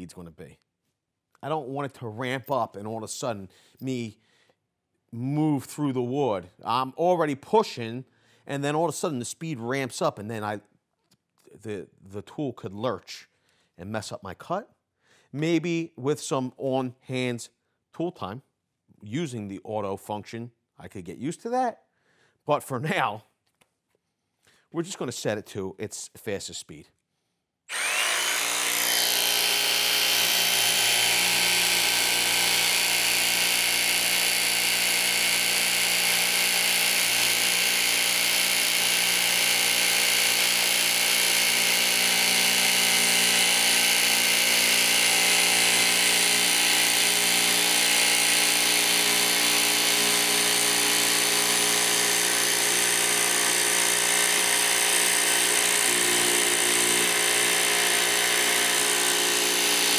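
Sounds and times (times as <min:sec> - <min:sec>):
jigsaw cutting wood: 0:27.7 - 0:59.9.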